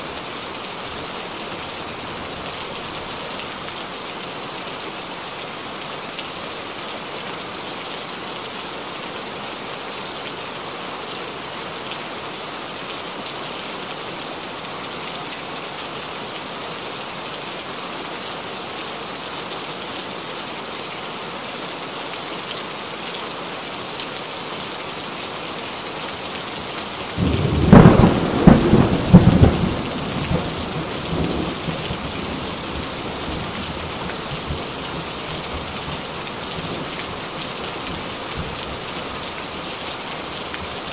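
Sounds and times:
heavy rain falling: 0:00.0 - 0:40.9
thunder clap rumbling: 0:27.2 - 0:32.8.

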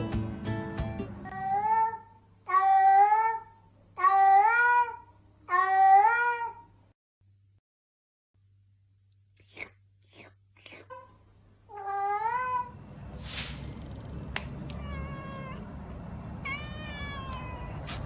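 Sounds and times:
cat meowing: 0:14.7 - 0:15.7, 0:16.4 - 0:18.0.

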